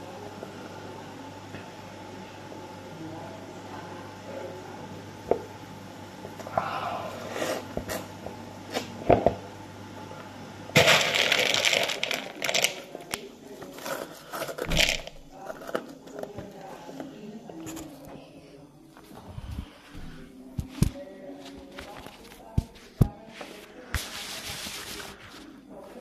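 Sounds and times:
crunching while eating: 0:10.8 - 0:15.9
potato sticks rattling in bowl: 0:10.8 - 0:16.0.

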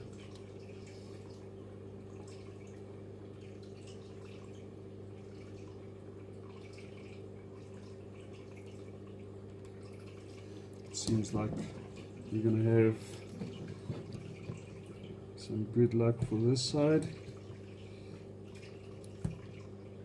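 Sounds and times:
steady low hum: 0:00.0 - 0:20.0.

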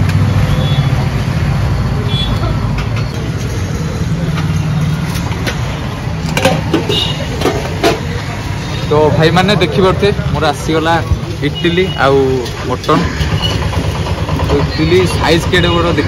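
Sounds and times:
street noise: 0:00.0 - 0:16.0.

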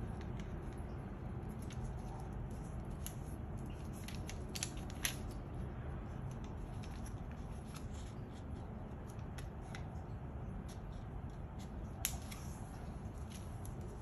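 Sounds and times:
paper folding crackles and clicks: 0:00.0 - 0:14.0.

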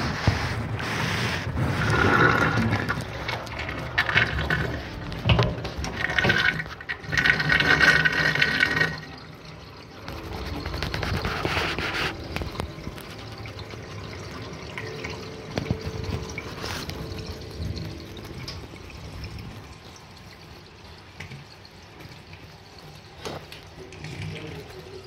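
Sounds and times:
rushing water surges: 0:00.0 - 0:25.0
water draining underwater: 0:00.0 - 0:25.0.

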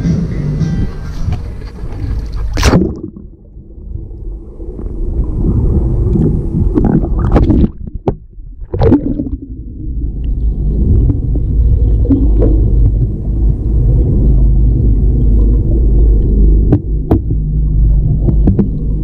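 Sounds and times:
muffled underwater rumbling: 0:00.0 - 0:19.0
camera splashing into water: 0:01.9 - 0:03.3.

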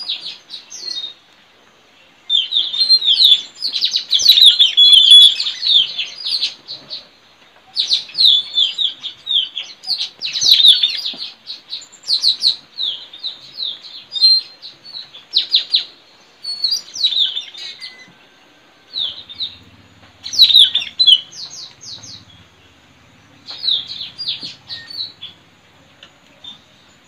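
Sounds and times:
parrots shrill chirping: 0:04.1 - 0:05.9, 0:19.0 - 0:22.4, 0:23.5 - 0:25.4.

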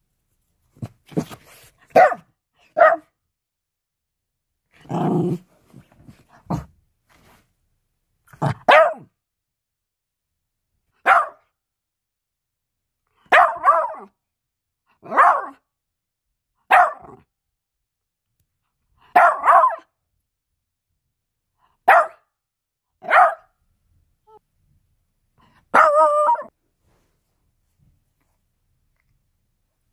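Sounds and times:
small dog barking: 0:01.9 - 0:03.2, 0:08.4 - 0:09.1, 0:11.0 - 0:11.5, 0:13.3 - 0:14.2, 0:15.0 - 0:15.6, 0:16.6 - 0:17.3, 0:19.1 - 0:19.9, 0:21.8 - 0:22.3, 0:23.0 - 0:23.6, 0:25.7 - 0:26.5.

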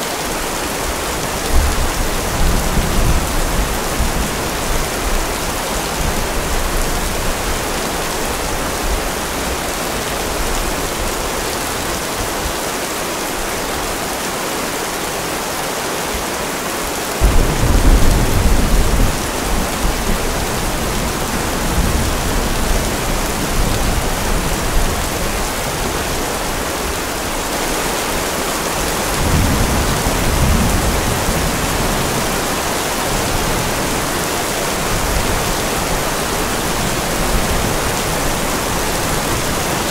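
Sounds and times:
steady rain: 0:00.0 - 0:39.9
thunder rumbling: 0:17.2 - 0:27.0, 0:28.1 - 0:39.9.

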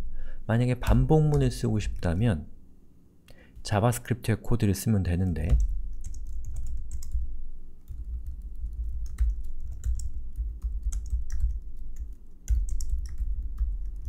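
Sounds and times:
keyboard typing clicks: 0:07.9 - 0:14.0.

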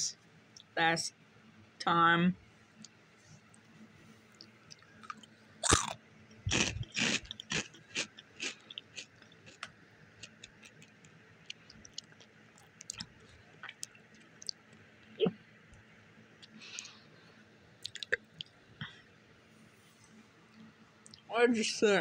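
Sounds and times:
person chewing crunchy chips: 0:04.6 - 0:14.6, 0:17.8 - 0:18.2.

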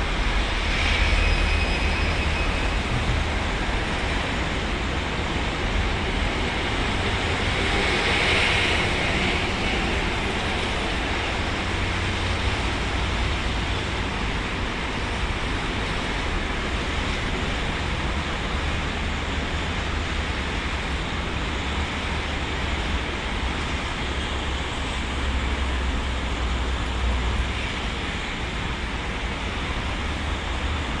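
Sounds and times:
low rumble: 0:01.9 - 0:04.1.

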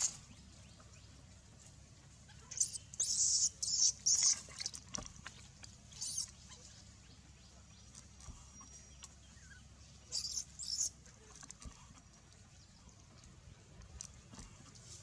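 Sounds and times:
rustling on dry leaves: 0:00.0 - 0:00.6
monkey infant squeaking: 0:02.3 - 0:04.8, 0:05.9 - 0:06.8, 0:09.4 - 0:11.0.

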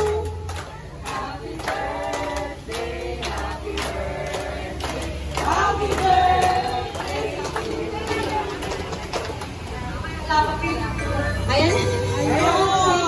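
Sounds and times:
group singing together: 0:00.0 - 0:09.1
people clapping along: 0:00.0 - 0:10.0.

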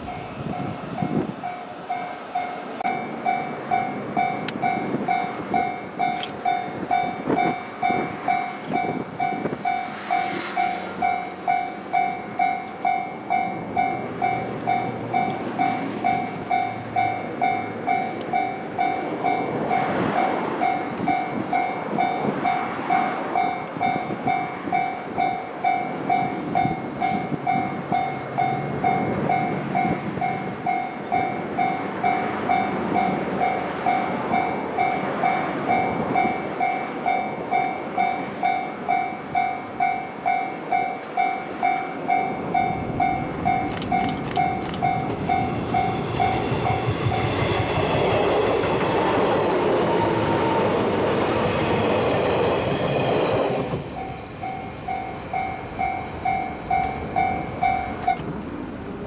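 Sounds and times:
level-crossing warning bell: 0:00.0 - 0:58.3
electric train passing: 0:00.0 - 0:59.0.

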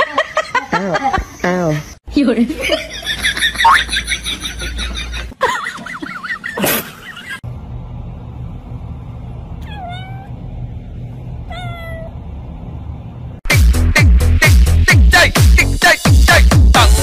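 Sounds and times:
steady low hum: 0:00.4 - 0:13.4
kitten meowing: 0:09.6 - 0:10.3, 0:11.5 - 0:12.1.

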